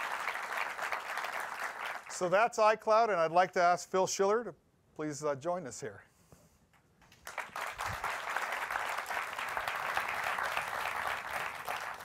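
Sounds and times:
audience applauding: 0.0 - 2.2, 7.2 - 12.0.

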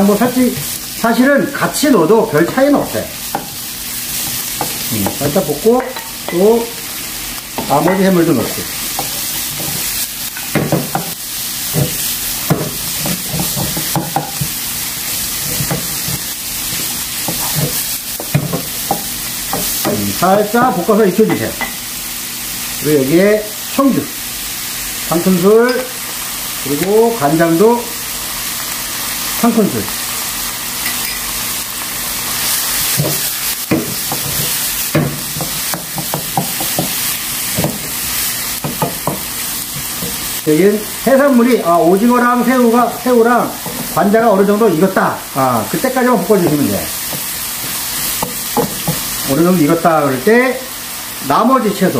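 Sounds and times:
seafood sizzling in oil: 0.0 - 51.9
spatula scraping pan: 7.6 - 21.8, 32.2 - 40.4.

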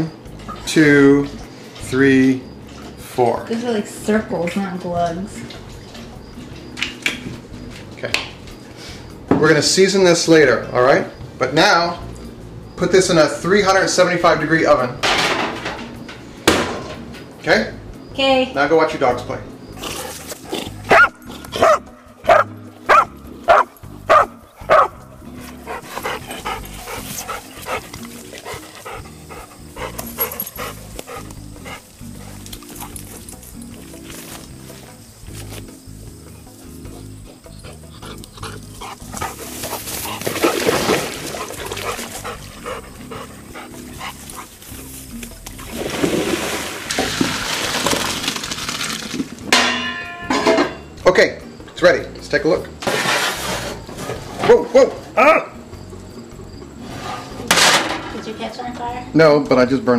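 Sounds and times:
light background music: 0.0 - 59.9
dog barking: 20.9 - 25.0
dogs splashing through water: 37.7 - 49.4.

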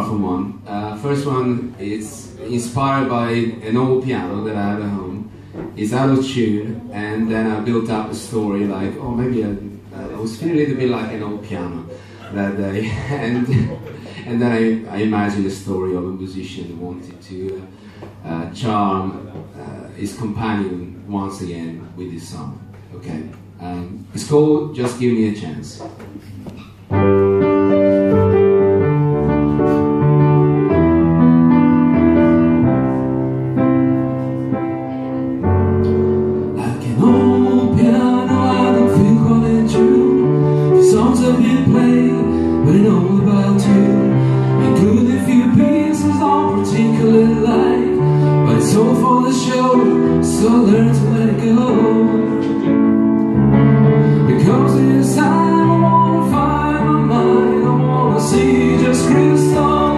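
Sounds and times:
grand piano playing: 26.7 - 59.9
man singing: 36.5 - 52.8, 54.0 - 59.9.

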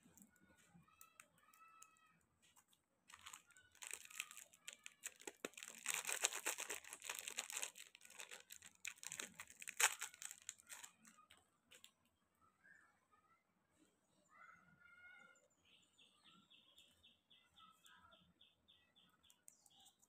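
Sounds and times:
plastic wrapper crinkling and tearing: 2.6 - 11.9.

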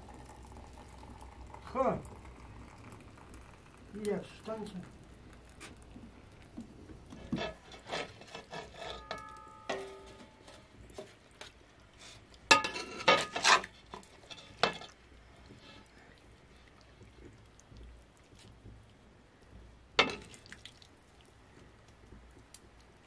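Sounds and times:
metal ladle scraping a wok: 7.1 - 11.2, 12.6 - 14.9.

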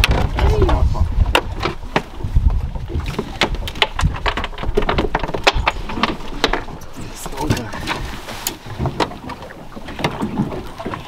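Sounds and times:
sharp clicks and knocks: 3.1 - 6.8.

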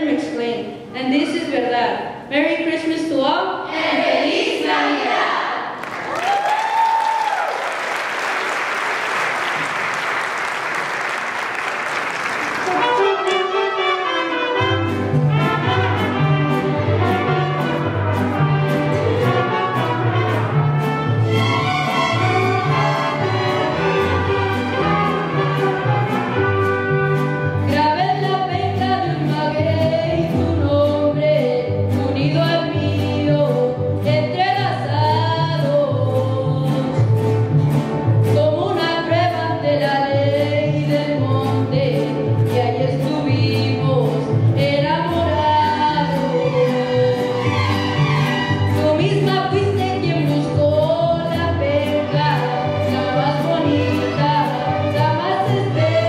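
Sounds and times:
violins: 12.6 - 29.7, 45.0 - 56.0
guitar: 12.7 - 56.0
person singing: 48.8 - 56.0.

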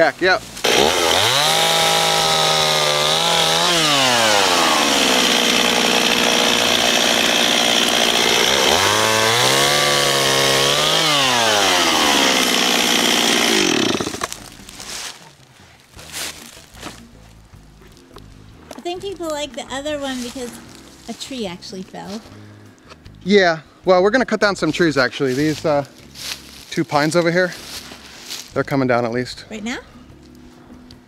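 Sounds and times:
chainsaw revving and cutting: 0.6 - 14.8.

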